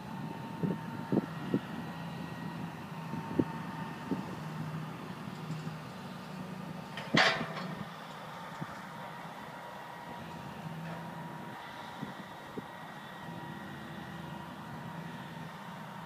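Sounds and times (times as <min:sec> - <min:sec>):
excavator engine running: 0:00.0 - 0:16.0.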